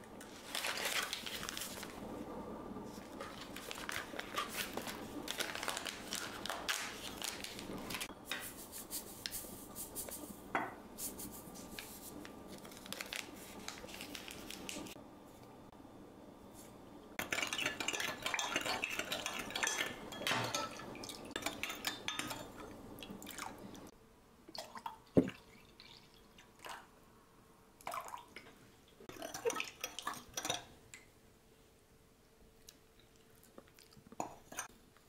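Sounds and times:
spoon clinking on glass: 0:17.2 - 0:22.7
water pouring from pitcher: 0:24.5 - 0:26.8.

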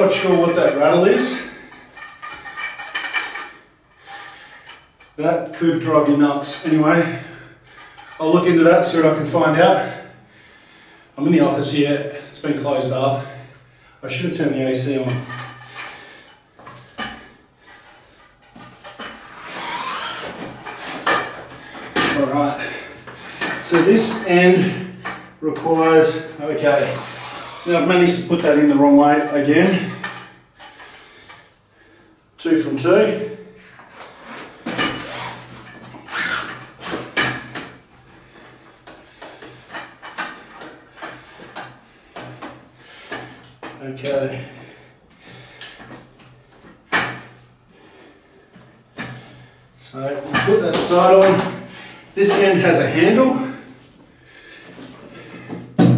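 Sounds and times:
metal scraping: 0:00.0 - 0:09.0, 0:14.9 - 0:31.4
metal frame clicks and rattles: 0:00.1 - 0:06.7, 0:07.6 - 0:08.5, 0:15.0 - 0:22.2, 0:28.4 - 0:31.5, 0:34.7 - 0:43.8.

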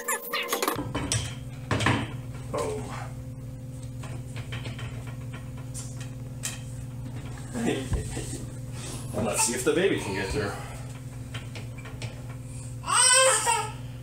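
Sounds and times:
steady low hum: 0:00.8 - 0:14.0
toddler vocalizing: 0:12.8 - 0:13.8.

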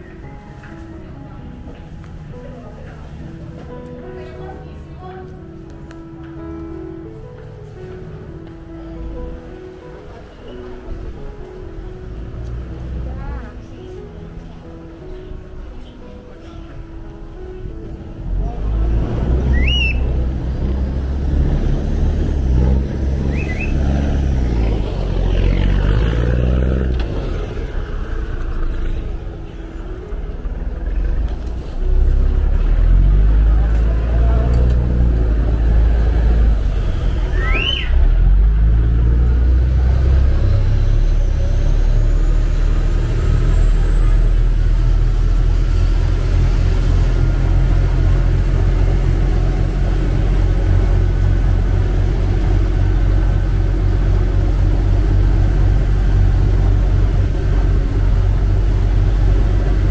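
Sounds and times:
short rising chirps: 0:19.4 - 0:20.2, 0:23.2 - 0:24.2
boat diesel engine running: 0:38.0 - 0:59.9.

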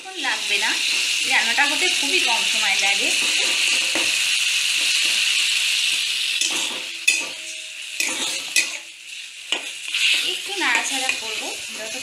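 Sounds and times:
food sizzling in oil: 0:00.0 - 0:12.0
metal spatula scraping pan: 0:03.1 - 0:05.4, 0:06.4 - 0:08.9.

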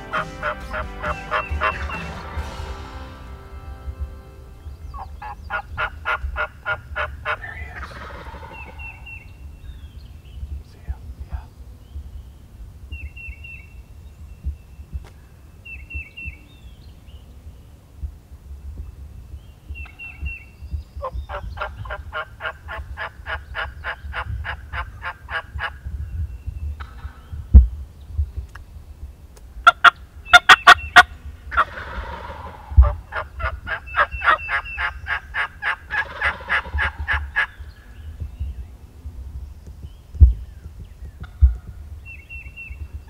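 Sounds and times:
turkey yelping: 0:00.0 - 0:02.4, 0:04.9 - 0:09.2, 0:29.6 - 0:37.6
low thumps: 0:00.0 - 0:05.5.

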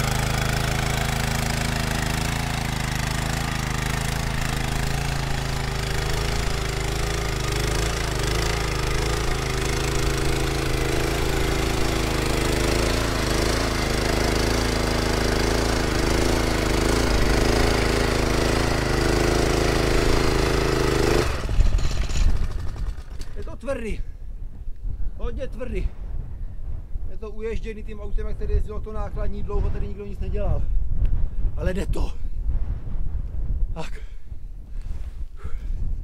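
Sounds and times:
small petrol engine under load: 0:00.0 - 0:23.6.

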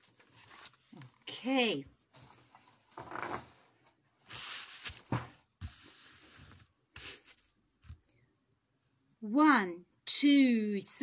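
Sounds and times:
paper rustling: 0:00.0 - 0:01.5, 0:04.2 - 0:07.6.

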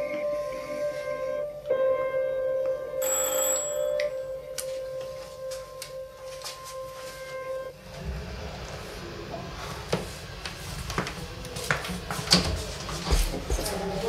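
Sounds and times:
buzzing doorbell: 0:03.0 - 0:05.0
footsteps: 0:09.9 - 0:14.0.

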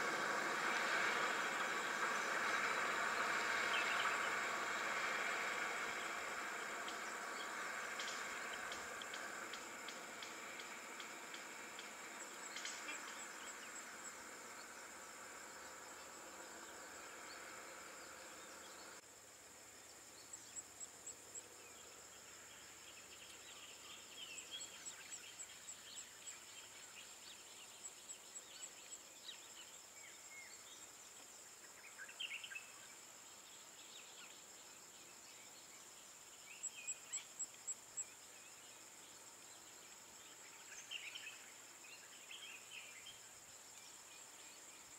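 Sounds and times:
quick evenly spaced ticks: 0:00.0 - 0:19.0
low steady hum: 0:00.0 - 0:30.8
insect drone: 0:00.0 - 0:44.9.

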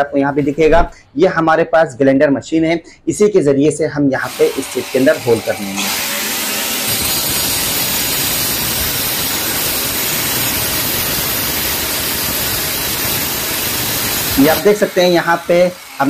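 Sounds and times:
angle grinder cutting ceramic: 0:04.2 - 0:16.0.

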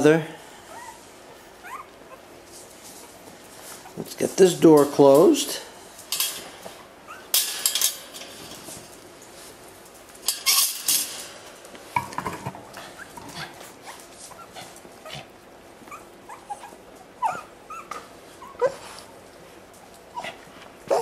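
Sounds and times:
puppies squeaking and whimpering: 0:00.6 - 0:01.0, 0:01.6 - 0:02.4, 0:07.0 - 0:07.3, 0:12.9 - 0:19.1
wire playpen door rattling: 0:07.4 - 0:08.9, 0:10.2 - 0:11.4.

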